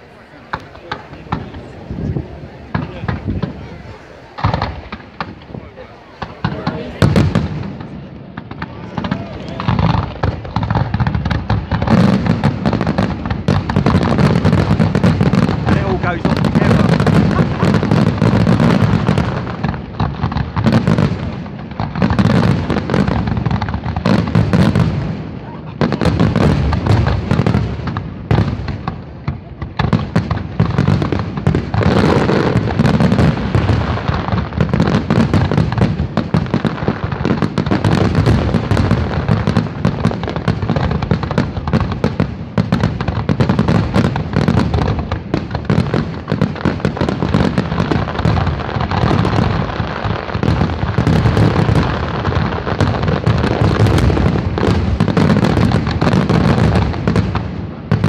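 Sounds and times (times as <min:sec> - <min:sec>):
firework shells bursting: 0:00.1 - 0:20.6.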